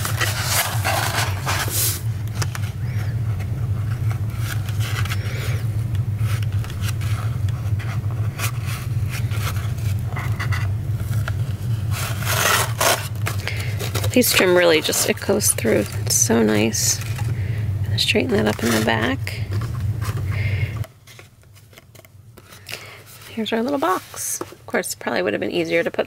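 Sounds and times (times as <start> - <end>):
paper and lace rustling: 0.0 - 3.2, 6.2 - 17.4, 21.0 - 24.8
steady low hum: 0.0 - 26.0.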